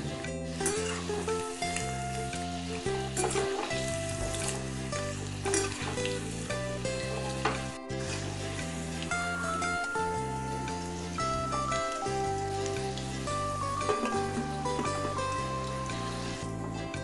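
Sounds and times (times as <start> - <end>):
chicken sizzling in hot oil: 0.0 - 17.0
plucked-string background music: 0.0 - 17.0
metal spoon scraping pan: 0.6 - 1.1.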